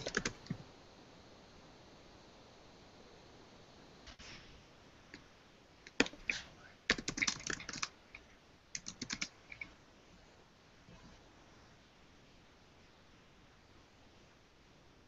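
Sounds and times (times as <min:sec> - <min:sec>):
computer keyboard typing: 0:00.0 - 0:00.6, 0:05.9 - 0:06.3, 0:06.9 - 0:07.9, 0:08.7 - 0:09.7.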